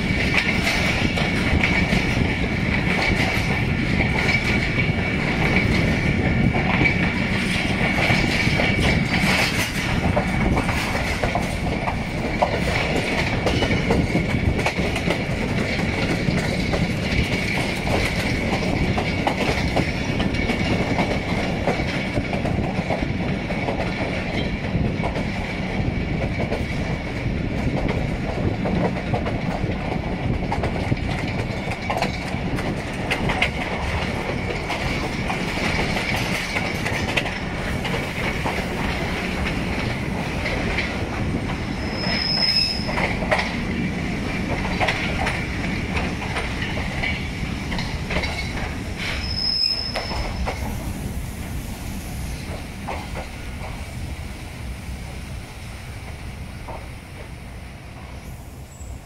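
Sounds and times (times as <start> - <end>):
wheel clacks on track: 0.0 - 50.9, 52.4 - 53.9, 56.0 - 57.3
train rumbling on track: 0.0 - 59.0
high wheel squeal: 41.7 - 43.1, 49.0 - 50.8.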